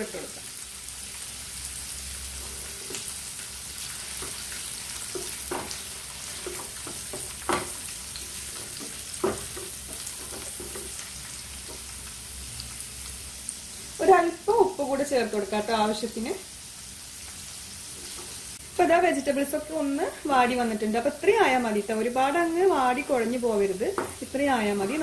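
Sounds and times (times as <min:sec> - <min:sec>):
vegetables sizzling in oil: 0:00.0 - 0:25.0
wooden spatula scraping a pan: 0:04.1 - 0:11.8.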